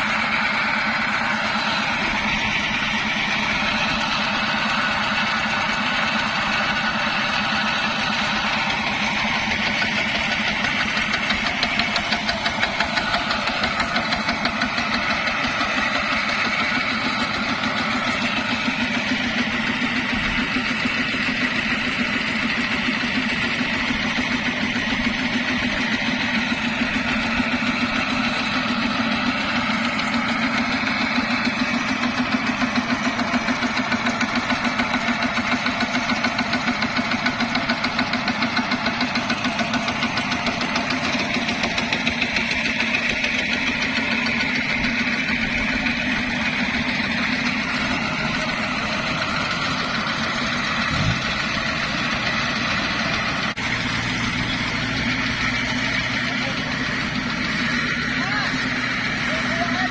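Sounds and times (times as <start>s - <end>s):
diesel engine chugging at idle: 0.0s - 59.9s.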